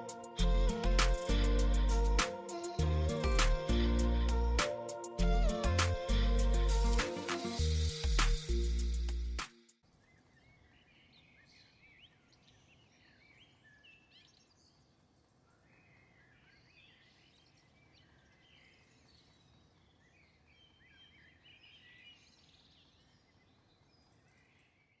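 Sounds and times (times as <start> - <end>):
birds chirping: 0.0 - 9.2, 9.9 - 25.0
low outdoor background noise: 9.7 - 25.0.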